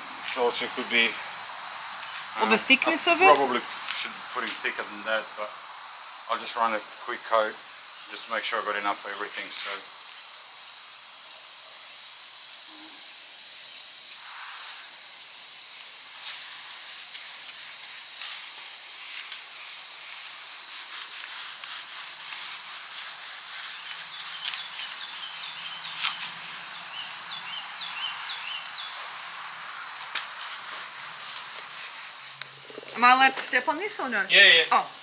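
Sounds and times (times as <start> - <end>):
paint roller scratchy rubbing: 8.2 - 9.8, 16.2 - 34.2.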